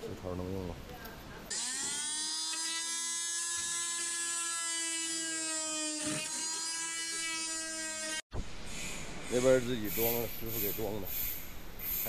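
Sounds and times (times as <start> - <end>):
power tool whining while cutting: 1.5 - 8.3.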